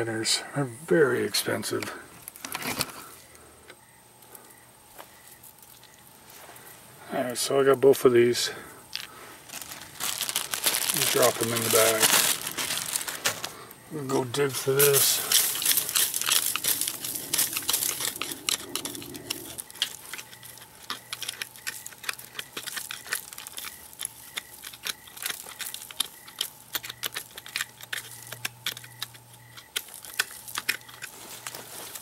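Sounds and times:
hand digging through dry leaves: 9.0 - 20.6, 31.0 - 32.0.

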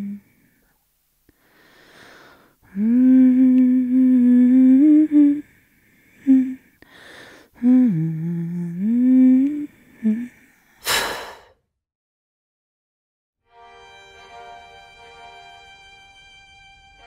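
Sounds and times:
person humming a slow tune: 0.0 - 0.4, 2.6 - 6.7, 7.6 - 11.4.

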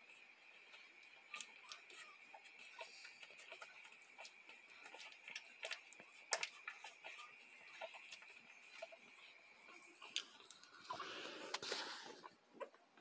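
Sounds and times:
puppies suckling clicking and smacking: 0.0 - 13.0.

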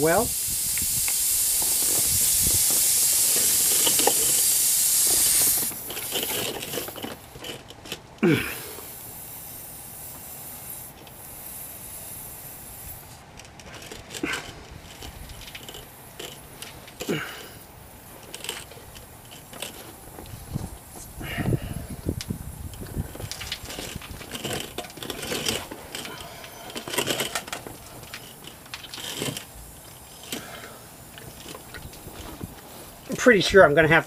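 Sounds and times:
air hissing out of tire: 0.0 - 7.4, 8.3 - 33.1
tool-handling clicks: 13.3 - 17.6, 18.2 - 20.4, 22.2 - 32.6.

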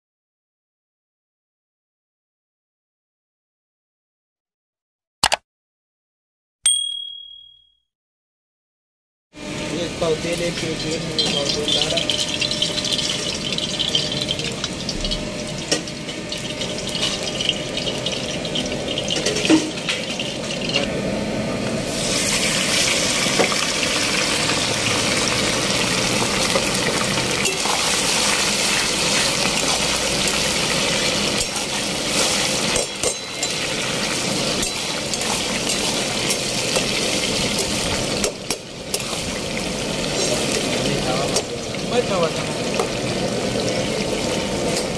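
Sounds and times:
chicken frying sizzle: 9.5 - 44.9
oil crackling: 22.0 - 32.7.

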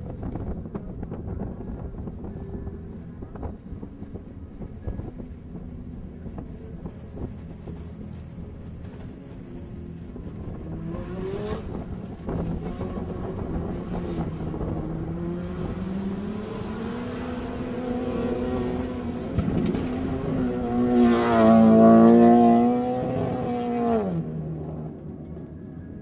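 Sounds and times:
rally car engine revving: 4.9 - 25.2.

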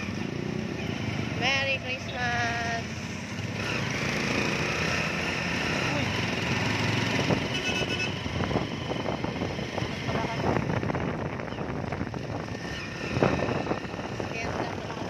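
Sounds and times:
motorcycle engine: 0.0 - 15.0
wind on microphone: 7.0 - 15.0
horn toot: 7.4 - 8.3.

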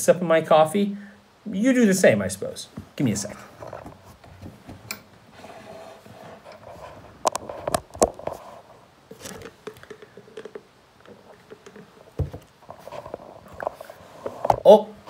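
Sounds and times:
rubbing on phone: 5.3 - 9.4.

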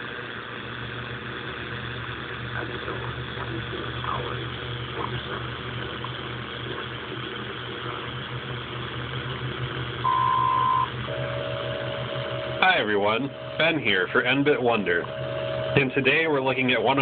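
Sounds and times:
radio static hiss: 0.0 - 17.0
low hum: 0.2 - 17.0
steady radio beep: 10.0 - 16.8.

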